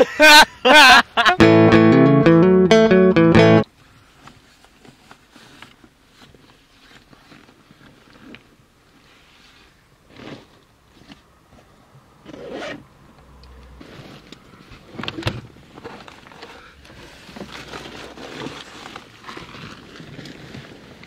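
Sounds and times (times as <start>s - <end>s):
rustling and scraping: 4.0s - 11.7s, 13.7s - 21.0s.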